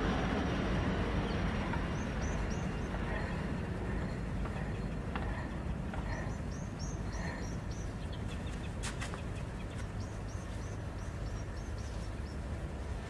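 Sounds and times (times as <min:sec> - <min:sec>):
steady low rumble: 0:00.0 - 0:13.0
small bird chirping: 0:01.3 - 0:05.0, 0:05.9 - 0:12.5.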